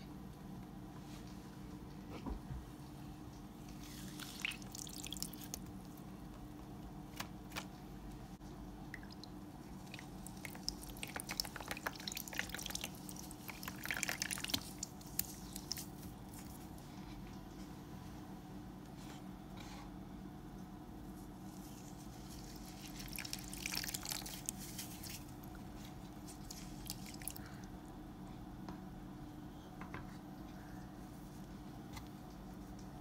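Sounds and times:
wet foam squishing: 0:03.6 - 0:06.0, 0:09.1 - 0:16.8, 0:21.6 - 0:27.6.

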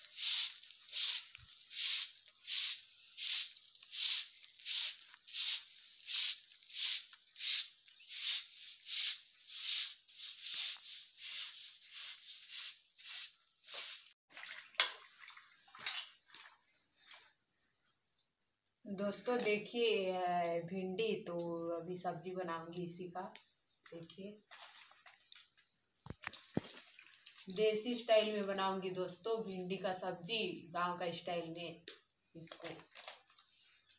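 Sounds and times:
broom sweeping dirt: 0:00.0 - 0:14.2
water splashing in pan: 0:14.3 - 0:16.6, 0:26.2 - 0:28.6.

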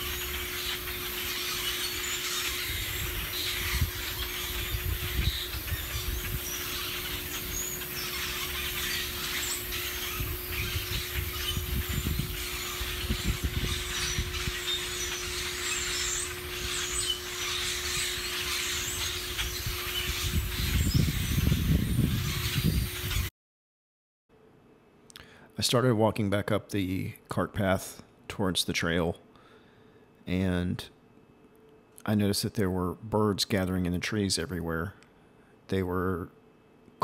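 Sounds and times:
faint steady hum: 0:00.0 - 0:23.2, 0:24.3 - 0:37.0
birds chattering: 0:00.0 - 0:23.3
wind buffeting microphone: 0:02.6 - 0:07.6, 0:09.5 - 0:23.3.

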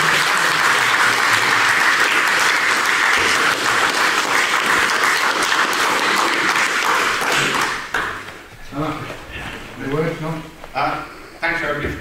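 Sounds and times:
group of people applauding: 0:00.0 - 0:08.3.

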